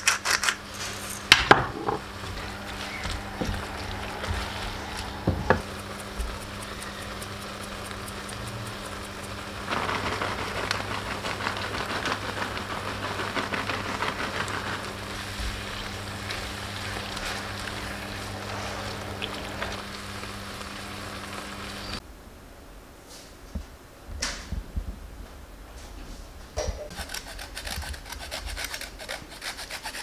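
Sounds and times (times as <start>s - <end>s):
food sizzling in a pan: 3.7s - 22.0s
utensil knocks: 5.2s - 6.3s.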